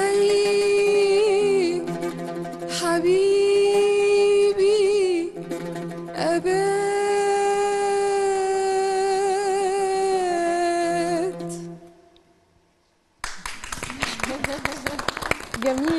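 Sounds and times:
woman singing long vowel notes: 0.0s - 1.9s, 2.7s - 5.4s, 6.2s - 11.8s.

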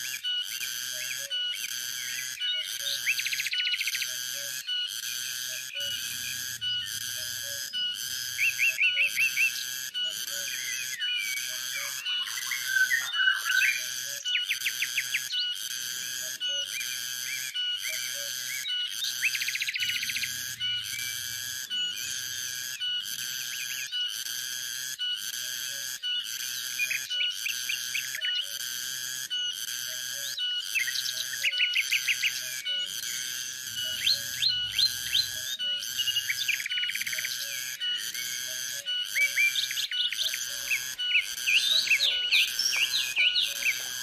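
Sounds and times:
cicada chorus pulsing: 0.0s - 44.0s
bird calling short notes: 39.2s - 44.0s.

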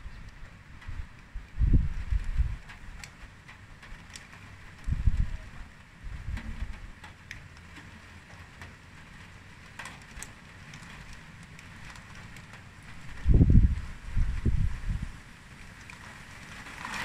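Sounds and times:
wind gusts buffeting microphone: 0.0s - 3.0s, 4.7s - 7.0s, 11.8s - 17.0s.

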